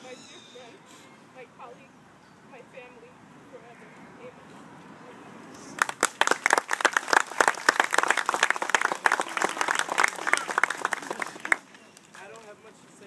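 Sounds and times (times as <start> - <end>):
people applauding: 5.8 - 12.4.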